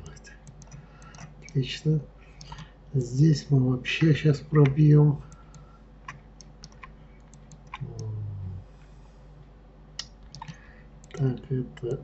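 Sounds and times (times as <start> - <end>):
mouse and keyboard clicks: 0.0 - 1.6, 4.0 - 8.1, 10.0 - 11.4
brief low hum: 7.8 - 8.7.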